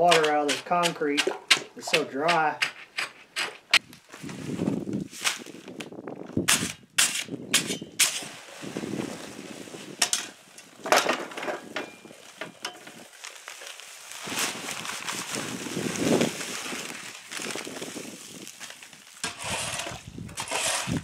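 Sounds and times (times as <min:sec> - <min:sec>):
paper bag crackling and rustling: 0:03.9 - 0:06.1, 0:08.2 - 0:20.3
dry mix sliding and pattering: 0:08.2 - 0:10.5, 0:12.0 - 0:21.0.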